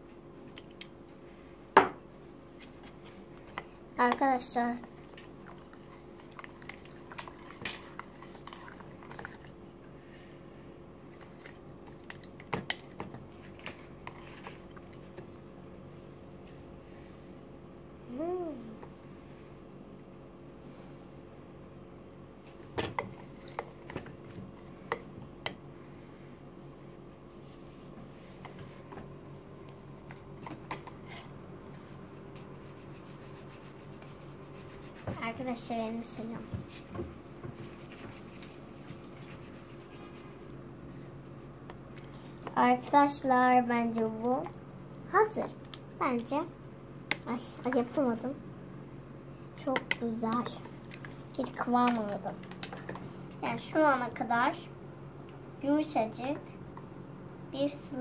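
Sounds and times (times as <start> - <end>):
faint steady hum: 0.0 - 58.0
slime rubbing: 37.6 - 40.4
wet slime squelches: 49.3 - 54.1.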